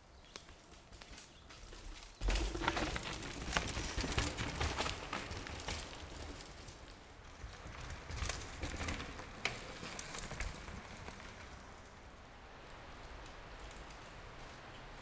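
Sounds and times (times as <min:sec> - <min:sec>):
bike tyres rumbling on dirt: 0:01.0 - 0:12.1
bike clattering over bumps: 0:02.2 - 0:11.9.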